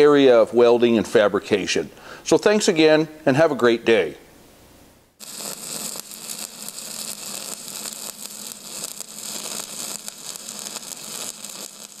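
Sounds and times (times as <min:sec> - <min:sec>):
welding arc crackling and hissing: 0:05.2 - 0:12.0.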